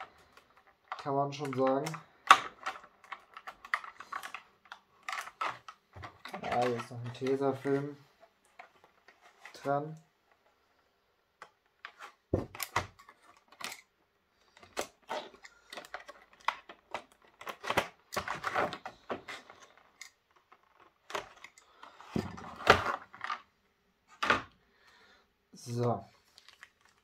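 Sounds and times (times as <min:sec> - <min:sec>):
plastic packaging crackling: 0:26.2 - 0:27.0.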